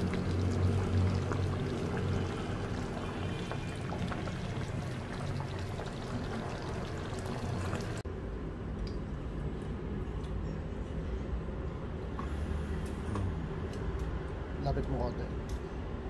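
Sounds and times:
liquid pouring: 0.0s - 8.0s.

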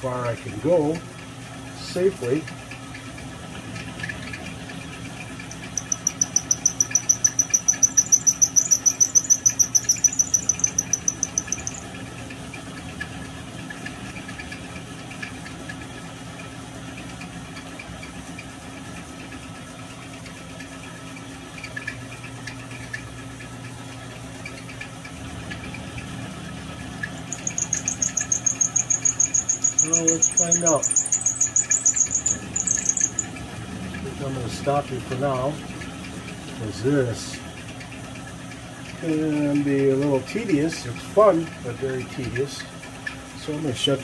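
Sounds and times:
milling machine motor hum: 3.6s - 12.2s, 27.2s - 36.6s
pulsing high-pitched squeal: 5.6s - 11.9s, 27.3s - 33.4s.

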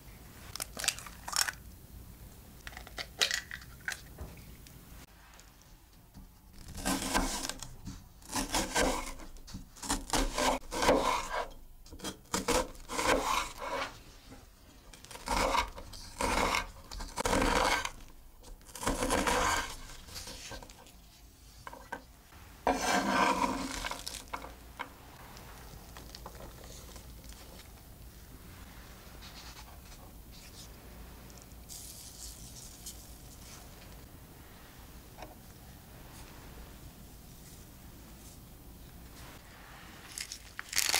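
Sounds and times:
low hiss: 0.0s - 6.6s, 23.4s - 40.6s
knife chopping onion on wooden board: 6.8s - 7.6s, 8.2s - 9.2s, 9.8s - 13.9s, 15.1s - 17.9s, 18.8s - 20.4s.

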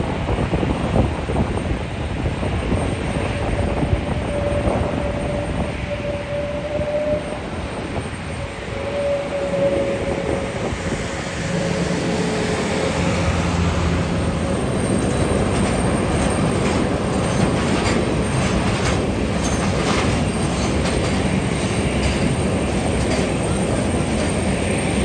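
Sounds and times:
jet engines roaring: 0.0s - 25.0s.

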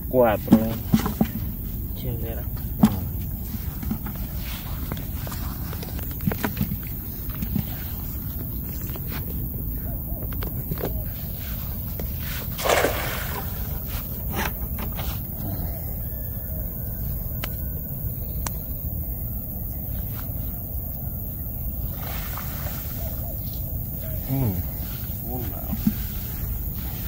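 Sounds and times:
wind rumble on microphone: 0.0s - 27.0s
water pouring off net: 12.5s - 13.7s
net splashing into water: 12.5s - 13.8s.

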